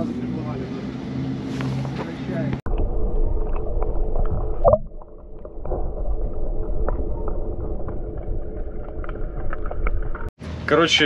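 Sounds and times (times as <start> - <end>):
water noise: 2.6 - 10.4
water swirl: 2.7 - 10.3.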